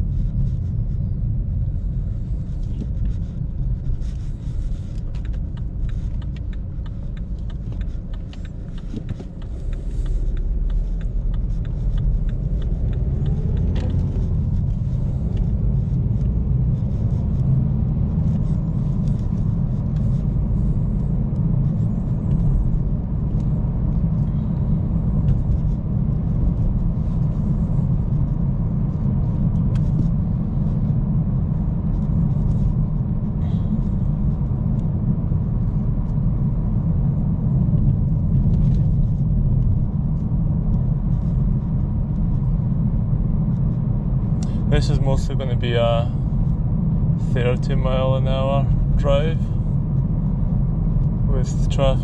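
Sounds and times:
car engine and road rumble: 0:00.0 - 0:52.0
light ticks: 0:04.9 - 0:15.6.

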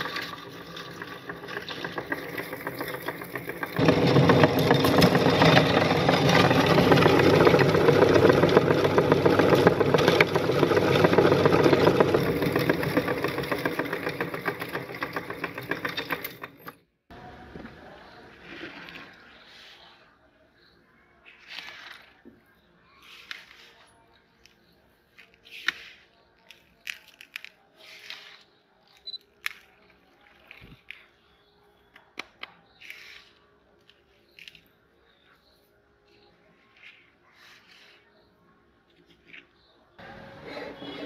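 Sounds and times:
meat grinder crunching candy: 0:00.0 - 0:16.7, 0:25.4 - 0:30.9.

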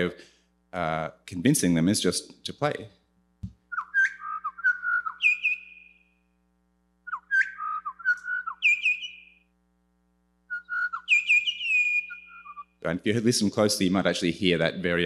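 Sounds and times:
bird song of fluting whistles: 0:03.7 - 0:06.0, 0:07.0 - 0:09.4, 0:10.5 - 0:12.7.

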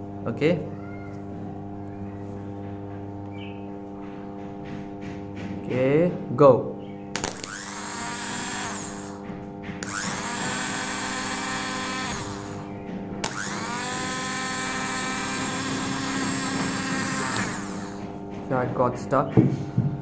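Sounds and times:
steady hum: 0:00.0 - 0:20.0
starter motor whine: 0:07.1 - 0:18.3.

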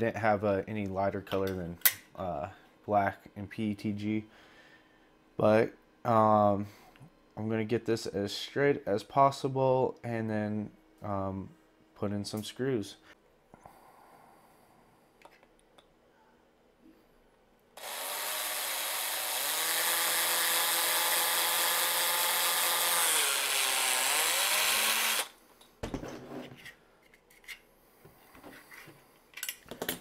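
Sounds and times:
electric drill drilling plastic: 0:17.8 - 0:25.4.

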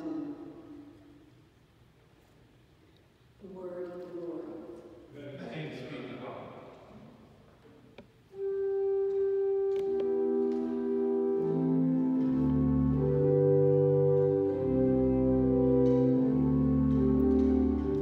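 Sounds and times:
organ playing held chords: 0:08.3 - 0:18.0.

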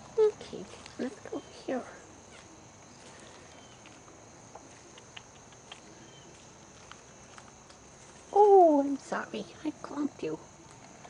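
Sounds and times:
footsteps on dry leaves: 0:02.2 - 0:04.9.

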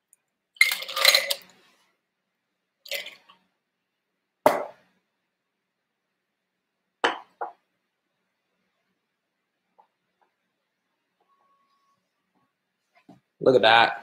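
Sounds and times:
glassware clinking on a counter: 0:07.0 - 0:07.6.

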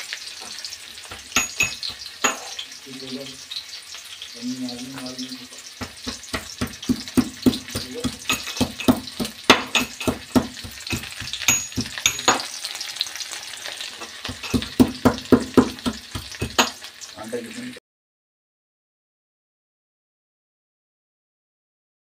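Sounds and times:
onions sizzling in oil: 0:00.0 - 0:17.8
metal ladle scraping pan: 0:01.2 - 0:02.7, 0:05.8 - 0:16.8.

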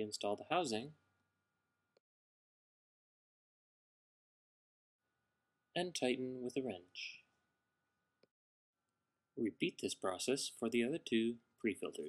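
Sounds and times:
narrator speaking: 0:00.0 - 0:01.0, 0:05.8 - 0:07.2, 0:09.4 - 0:12.0.

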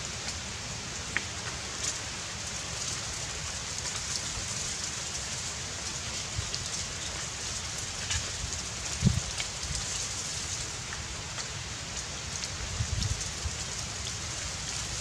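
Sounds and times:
outdoor hiss: 0:00.0 - 0:15.0
wind rumbling on microphone: 0:08.0 - 0:10.0, 0:12.6 - 0:13.8.

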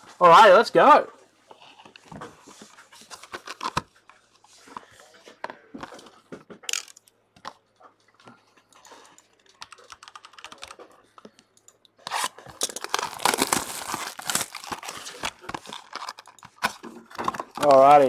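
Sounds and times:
handling noises and clicks: 0:01.8 - 0:18.0
plastic wrap crackling: 0:12.1 - 0:18.0.

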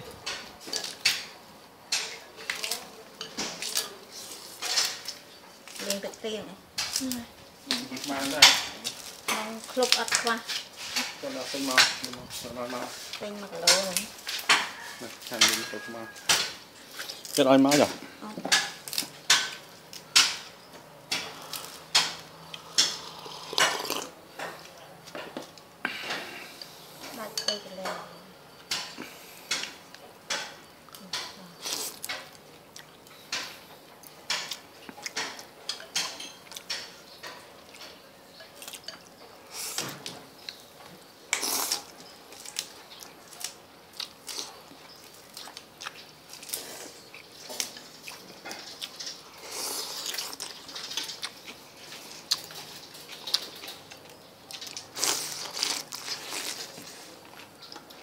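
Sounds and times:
chopsticks clinking on ceramic bowls: 0:13.6 - 0:16.6, 0:27.1 - 0:30.5, 0:34.3 - 0:39.1.

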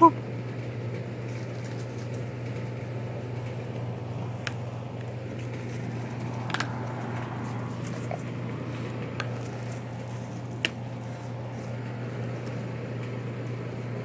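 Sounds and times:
air conditioner hum: 0:00.0 - 0:14.0.

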